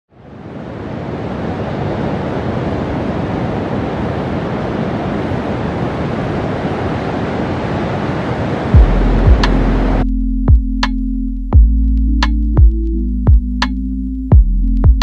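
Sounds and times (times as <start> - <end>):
ocean surf breaking: 0.1 - 10.0.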